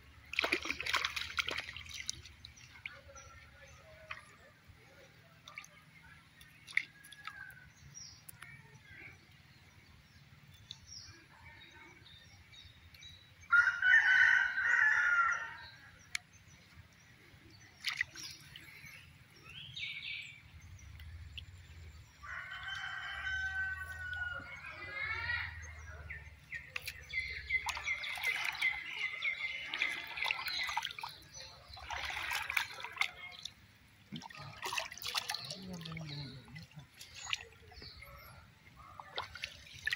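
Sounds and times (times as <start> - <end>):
rooster crowing: 13.5 - 15.6, 22.2 - 24.6.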